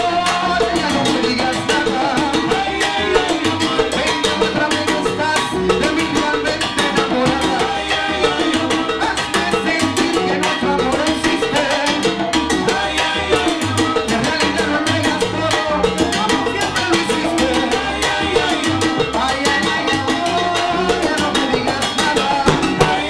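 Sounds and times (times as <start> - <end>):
bass line: 0.0 - 23.0
lead singer: 0.0 - 23.0
salsa band playing: 0.0 - 23.0
timbales and hand drums: 20.9 - 23.0.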